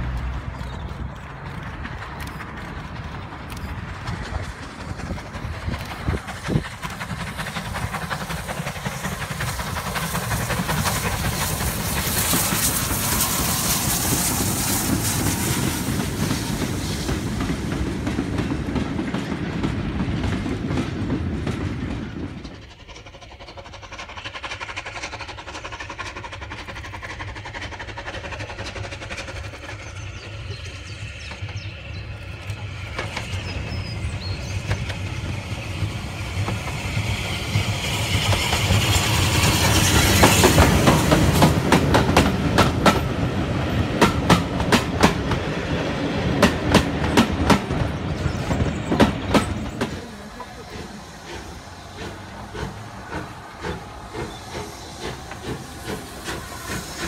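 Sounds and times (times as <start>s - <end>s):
wagon wheels clattering over rail joints: 0.0s - 11.0s
distant steam locomotive working: 0.0s - 57.0s
steam locomotive exhaust: 0.0s - 57.0s.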